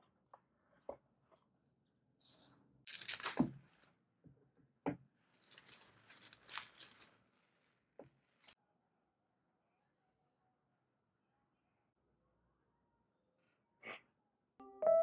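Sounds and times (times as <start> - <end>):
bubble wrap rustling and crinkling: 2.9 - 3.9, 5.2 - 8.6.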